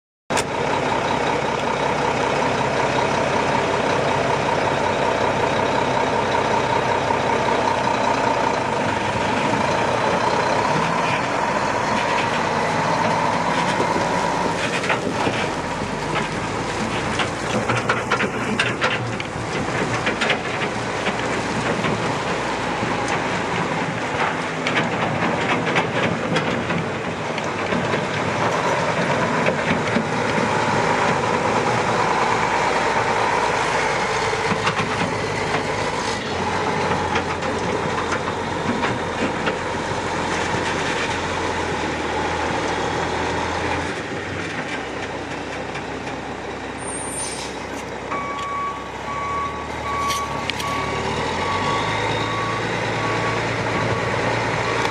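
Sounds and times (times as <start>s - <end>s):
diesel truck engine running: 0.3s - 54.9s.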